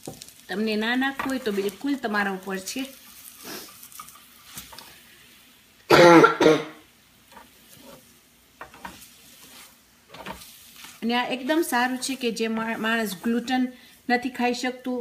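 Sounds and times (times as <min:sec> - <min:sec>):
pancake sizzling in frying pan: 0:00.0 - 0:06.0, 0:06.8 - 0:15.0
spatula scraping and tapping pan: 0:01.0 - 0:02.0, 0:03.0 - 0:05.0, 0:07.3 - 0:13.6
person coughing: 0:05.9 - 0:06.8.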